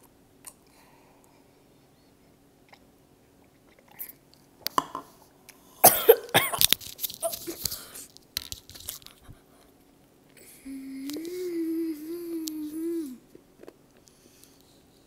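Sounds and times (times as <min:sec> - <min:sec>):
boy coughing: 0:05.8 - 0:06.7.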